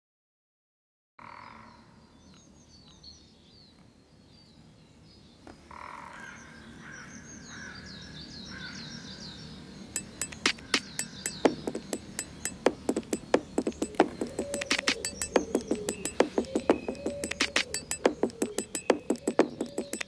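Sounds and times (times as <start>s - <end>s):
bird-like chirps: 8.2s - 20.0s
sharp beat clicks: 10.0s - 20.0s.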